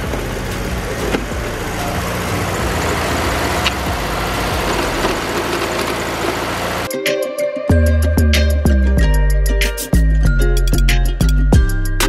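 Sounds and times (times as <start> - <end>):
dune buggy engine idling: 0.0 - 6.9.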